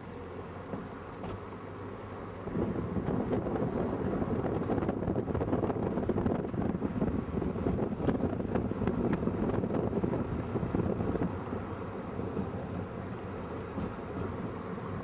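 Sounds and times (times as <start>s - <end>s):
vehicle rumble: 0.0s - 15.0s
wind buffeting microphone: 2.5s - 12.9s.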